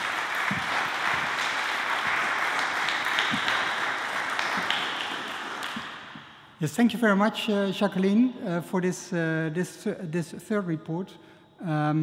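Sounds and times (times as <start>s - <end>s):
small audience applauding: 0.0s - 6.3s.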